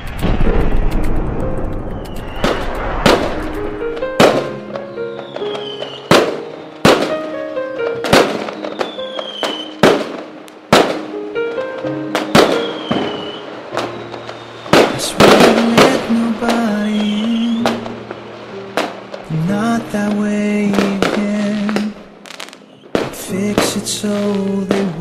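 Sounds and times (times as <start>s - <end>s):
firework bangs: 0.0s - 25.0s
firework crackle: 0.0s - 25.0s
instrumental song intro: 0.0s - 25.0s
falling firework whistles: 1.8s - 7.3s, 8.0s - 10.2s, 12.1s - 19.1s.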